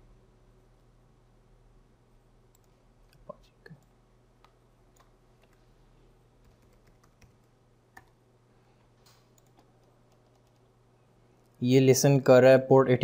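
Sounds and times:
steady low hum: 0.0 - 13.0
keyboard keystrokes and clicks: 6.4 - 8.2, 9.1 - 10.7.

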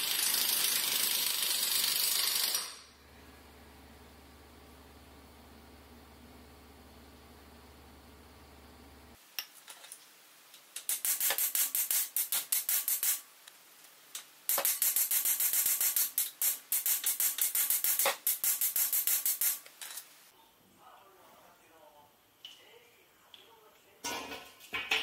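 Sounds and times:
socket ratchet clicking: 10.8 - 13.2, 14.5 - 19.7.

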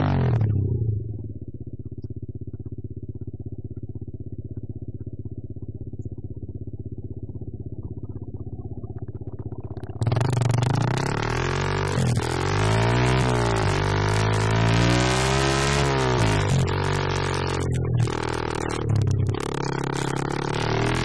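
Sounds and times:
dirt bike engine revving: 0.0 - 0.6, 9.8 - 21.0.

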